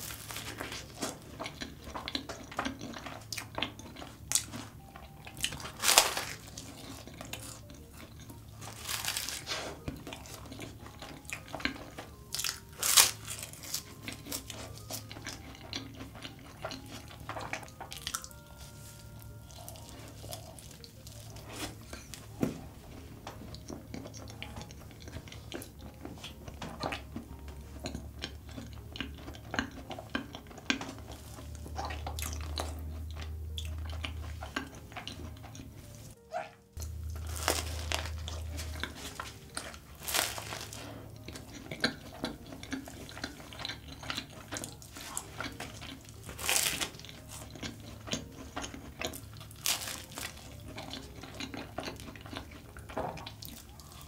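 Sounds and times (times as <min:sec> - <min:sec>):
bite into pastry: 0:00.0 - 0:18.4, 0:19.5 - 0:22.7, 0:36.3 - 0:54.0
chewing with mouth clicks: 0:00.0 - 0:54.0.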